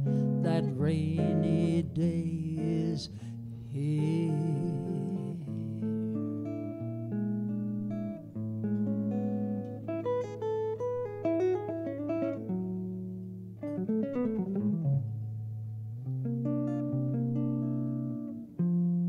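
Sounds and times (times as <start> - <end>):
low held bass notes: 0.0 - 8.2
jazz guitar solo: 0.0 - 19.0.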